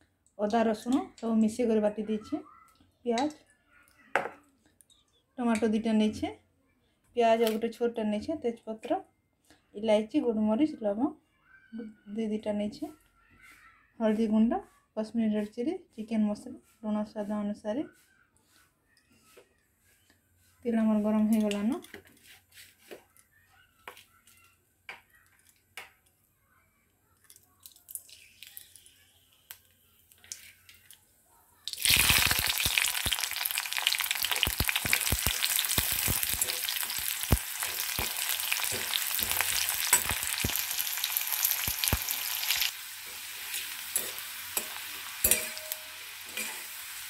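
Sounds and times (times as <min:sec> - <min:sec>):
oil sizzling: 0:27.3 - 0:31.0, 0:31.6 - 0:47.0
spatula scraping pan: 0:41.4 - 0:47.0.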